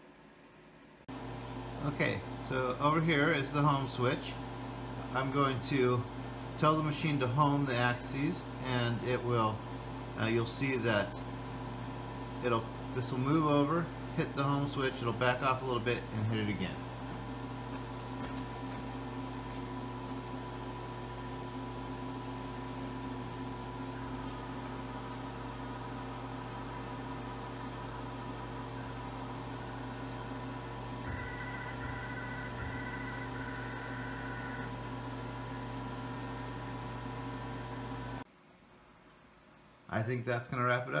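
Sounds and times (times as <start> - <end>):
milling machine humming and whining: 1.1 - 38.2
servo motors humming and whining: 23.8 - 35.4.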